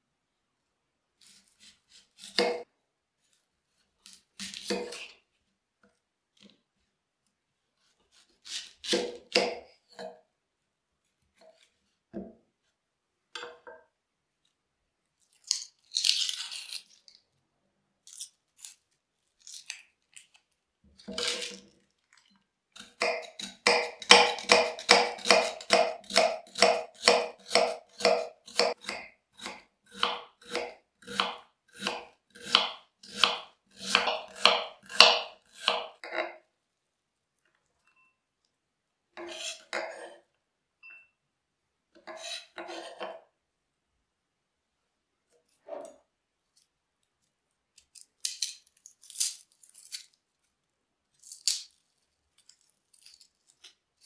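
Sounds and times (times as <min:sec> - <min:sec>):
knife cutting onion on board: 0:01.2 - 0:02.7, 0:04.0 - 0:05.2, 0:08.1 - 0:10.1, 0:22.8 - 0:36.4, 0:39.2 - 0:40.2, 0:42.0 - 0:43.2
onion skin crackling: 0:15.2 - 0:17.2, 0:47.8 - 0:50.4, 0:51.1 - 0:54.0.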